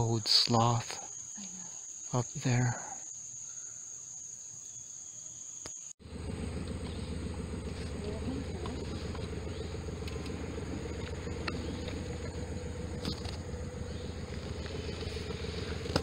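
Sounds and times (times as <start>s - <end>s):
outboard motor running: 6.0s - 16.0s.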